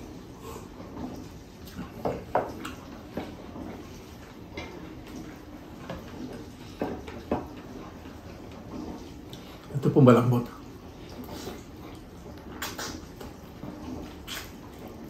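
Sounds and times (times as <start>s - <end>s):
person chewing and smacking: 12.6s - 13.3s.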